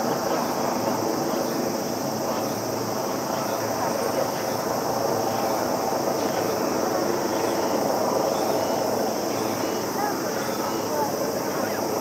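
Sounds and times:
distant voice over loudspeaker: 0.0s - 12.0s
insects droning: 0.0s - 12.0s.

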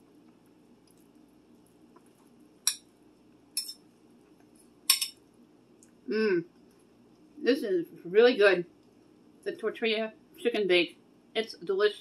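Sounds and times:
fork clinking against plate: 3.6s - 3.8s, 4.9s - 5.2s.

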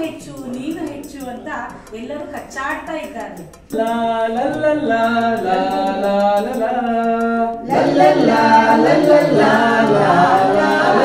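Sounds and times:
unaccompanied singing: 3.7s - 11.0s.

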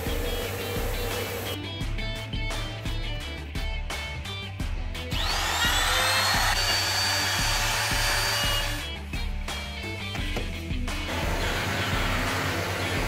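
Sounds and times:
wood router whining: 5.2s - 8.9s, 11.1s - 13.0s.

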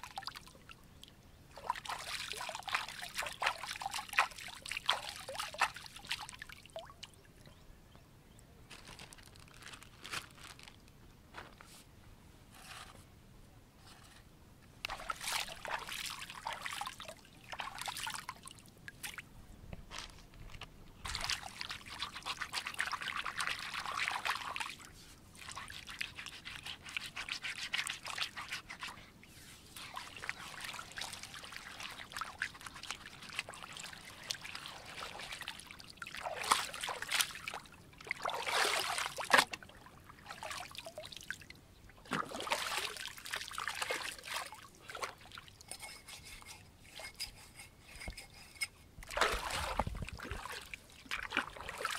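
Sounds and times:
hands splashing in water: 49.1s - 51.9s.

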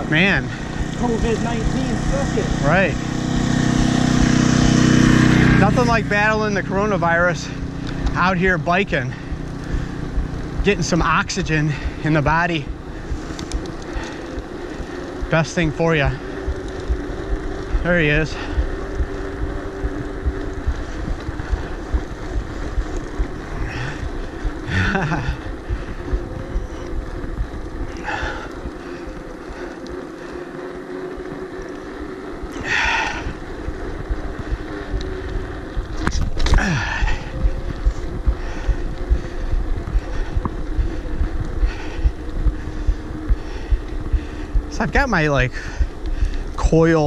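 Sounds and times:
bike tyre rumble: 0.0s - 47.0s
wind on microphone: 16.0s - 28.8s, 32.5s - 46.6s.

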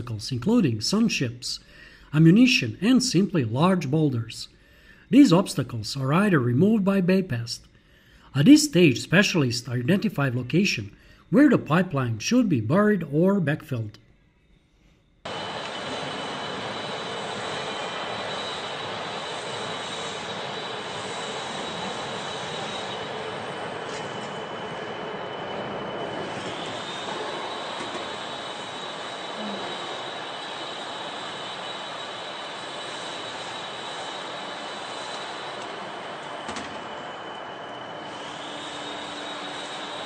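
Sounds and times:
faint high whine: 0.0s - 40.0s
freight train rolling: 15.3s - 40.0s.

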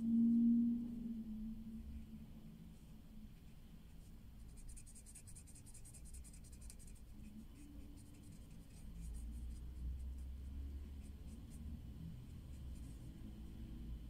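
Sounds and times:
marker scratching on paper: 4.4s - 11.6s, 12.5s - 13.0s.

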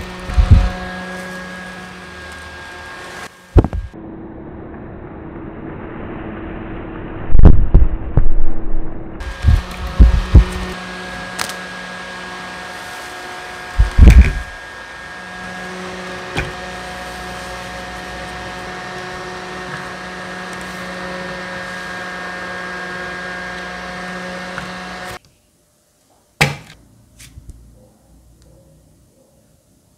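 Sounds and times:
desk fan motor whirring: 0.0s - 4.0s, 9.2s - 25.2s.

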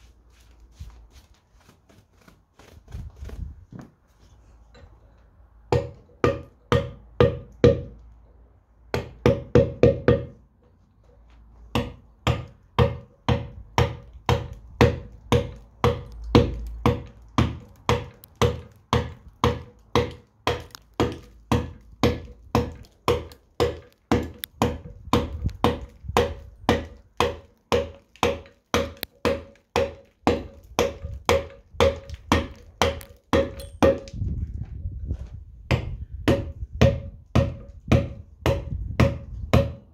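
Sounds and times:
mallet striking chisel on stone: 5.7s - 8.0s, 8.9s - 10.4s, 11.7s - 34.2s, 35.7s - 39.9s.

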